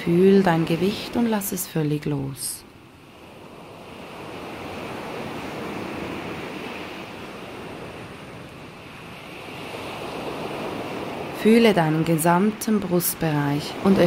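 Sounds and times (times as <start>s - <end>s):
ocean surf: 0.0s - 14.0s.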